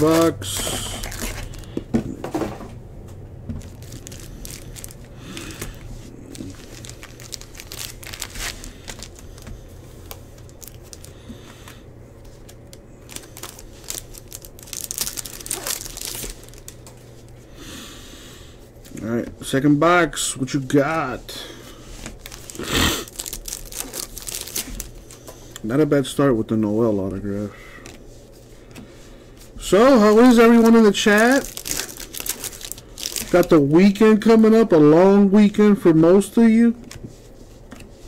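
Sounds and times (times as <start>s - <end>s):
wrappers crinkling and tearing: 0.0s - 1.7s, 3.6s - 17.4s, 21.8s - 25.7s, 29.4s - 34.3s
cards being handled: 0.0s - 2.5s
low steady hum: 0.0s - 38.0s.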